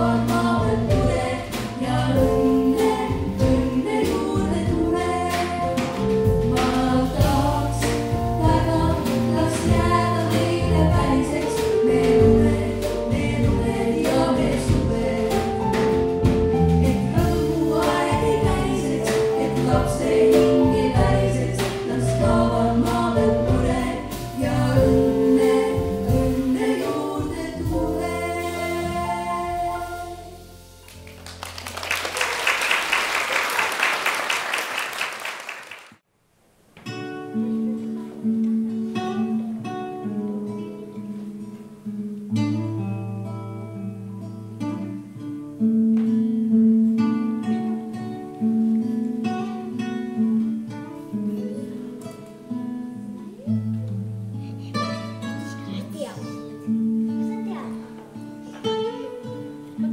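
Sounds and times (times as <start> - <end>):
choir singing with accompaniment: 0.0 - 30.7
audience applauding: 30.8 - 36.0.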